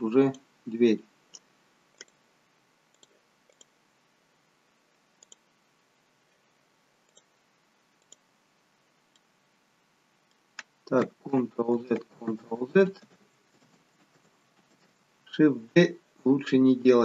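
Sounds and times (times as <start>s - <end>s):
computer mouse clicks: 1.3s - 2.2s, 2.9s - 3.7s, 5.2s - 5.4s, 7.1s - 7.3s, 8.0s - 8.2s.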